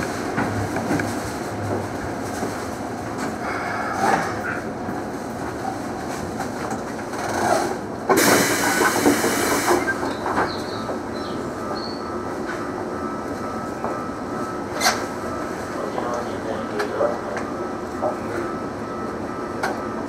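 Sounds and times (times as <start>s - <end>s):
train stopping and humming: 0.0s - 20.0s
compressed air hiss: 8.2s - 10.0s.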